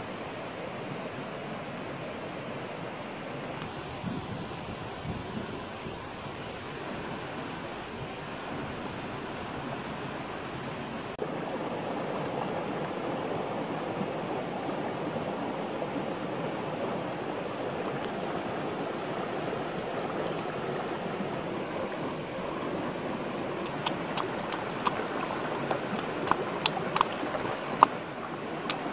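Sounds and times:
flowing stream: 0.0 - 28.9.

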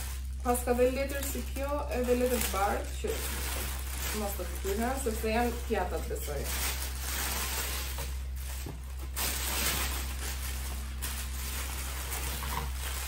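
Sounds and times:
paper rustling and crinkling: 0.0 - 13.0.

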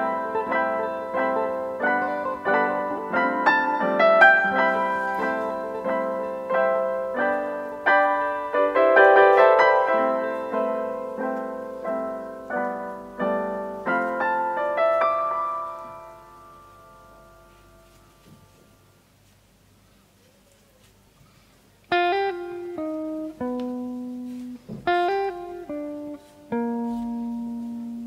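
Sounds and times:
gentle piano music: 0.0 - 19.1, 21.8 - 28.0.

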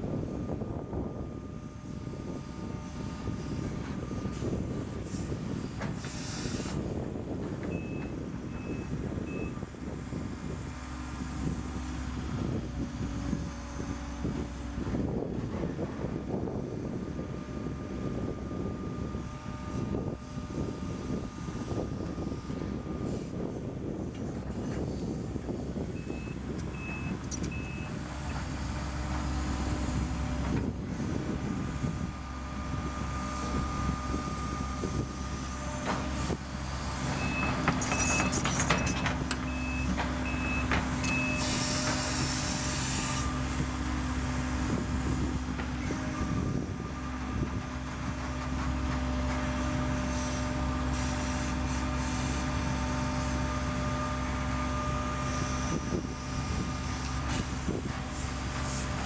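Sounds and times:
excavator diesel engine running: 0.0 - 59.0
brief hydraulic hiss: 5.9 - 6.9, 41.1 - 43.6, 50.1 - 52.5, 58.1 - 59.0
short high warning beeps: 26.0 - 27.9, 37.2 - 41.6.

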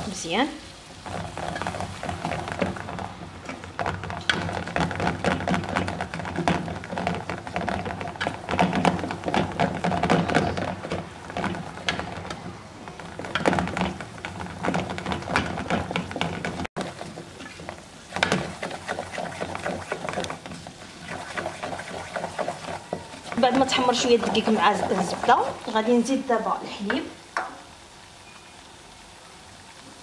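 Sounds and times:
spoon scraping metal pot: 17.4 - 25.5.

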